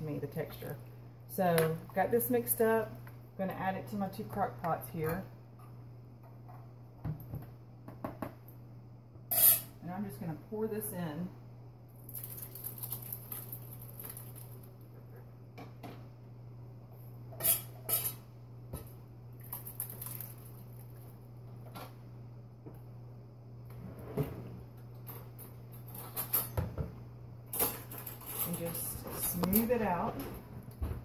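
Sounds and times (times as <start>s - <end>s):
low steady hum: 0.0s - 31.0s.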